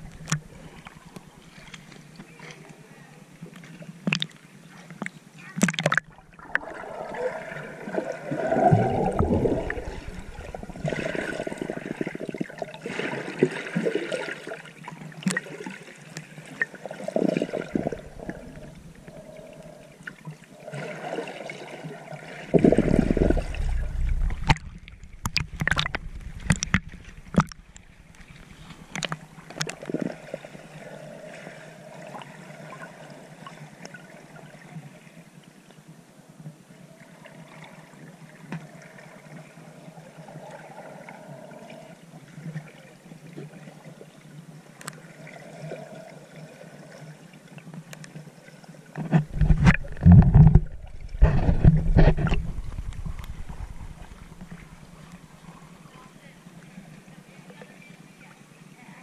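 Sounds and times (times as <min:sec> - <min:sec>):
muffled underwater bubbling: 0:05.5 - 0:13.0, 0:16.8 - 0:21.7, 0:22.3 - 0:33.0, 0:49.2 - 0:56.3.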